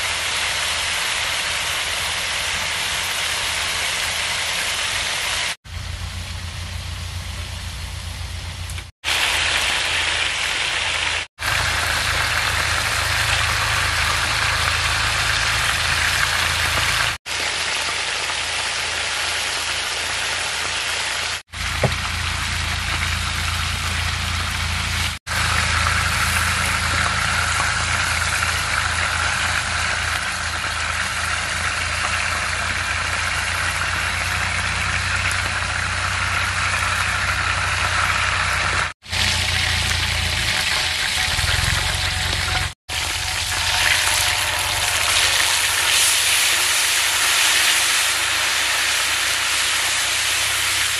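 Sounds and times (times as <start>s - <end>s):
low hum: 5.7s - 8.9s, 21.6s - 50.9s
patties sizzling on a griddle: 9.0s - 50.9s.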